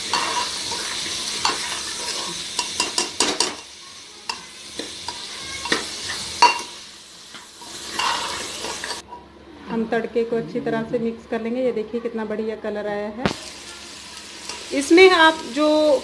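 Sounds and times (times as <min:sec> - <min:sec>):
food sizzling in hot oil: 0:00.0 - 0:09.0, 0:13.2 - 0:16.0
metal ladle scraping a pot: 0:07.7 - 0:09.0.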